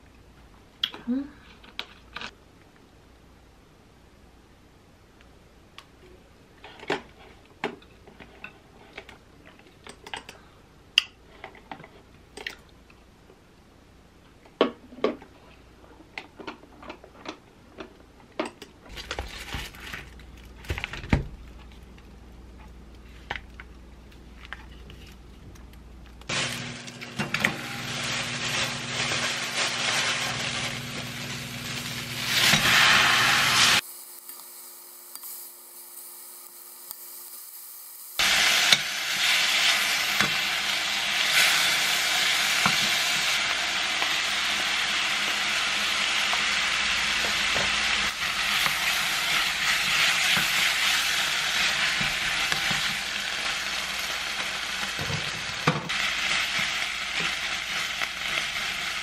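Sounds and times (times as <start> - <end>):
plastic packets rustling: 18.9 - 21.0, 26.3 - 32.4
meat sizzling in a pan: 26.3 - 59.0.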